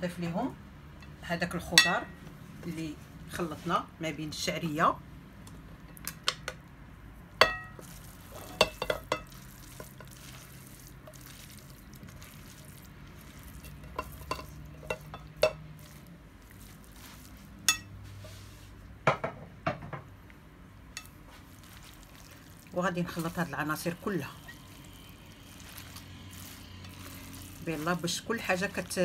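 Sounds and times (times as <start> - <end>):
spatula stirring thick filling: 7.4 - 18.8, 20.9 - 29.0
spatula knocking against glass bowl: 8.6 - 10.0.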